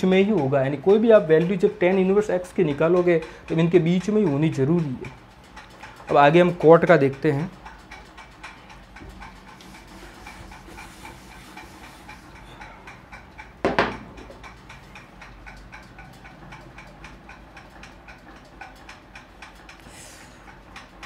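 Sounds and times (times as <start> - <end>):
clock ticking: 0.0 - 21.0
loud knock: 13.6 - 14.1.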